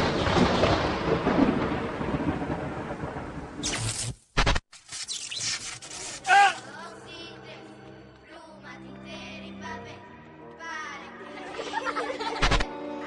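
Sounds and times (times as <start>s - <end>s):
thunder rumbling: 0.0s - 3.7s
rain: 0.0s - 4.3s.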